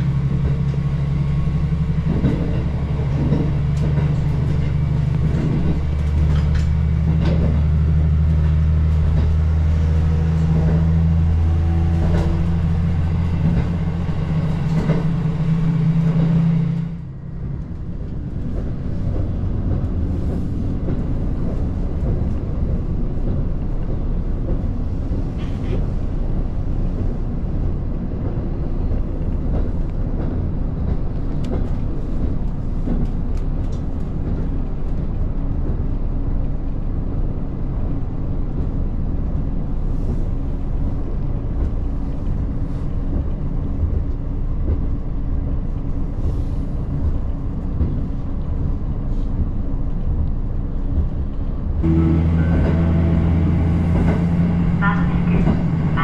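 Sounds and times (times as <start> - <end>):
diesel engine droning: 0.0 - 23.4, 50.4 - 56.0
train wheels rumbling on rails: 0.0 - 56.0.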